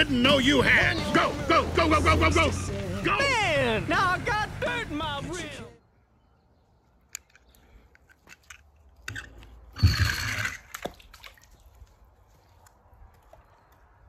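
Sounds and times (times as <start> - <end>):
toy car splashing into water: 9.8 - 11.6.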